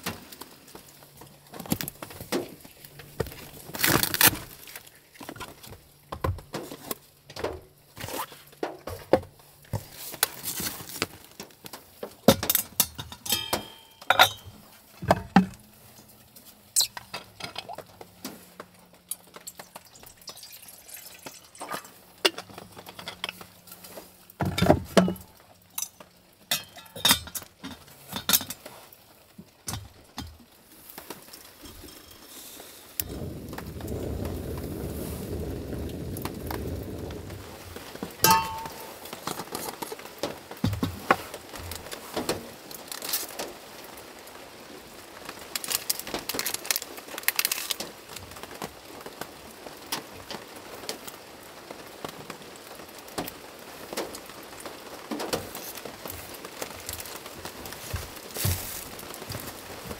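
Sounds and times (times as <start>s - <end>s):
metal cookware clattering: 12.3s - 15.6s, 24.5s - 28.6s, 38.2s - 39.0s
gas stove burning: 32.7s - 39.4s.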